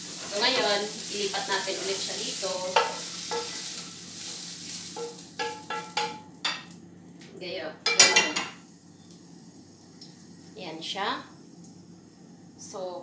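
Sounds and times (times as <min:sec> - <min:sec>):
sizzle: 0:00.0 - 0:13.0
spatula knocking pan and plate: 0:05.0 - 0:06.7.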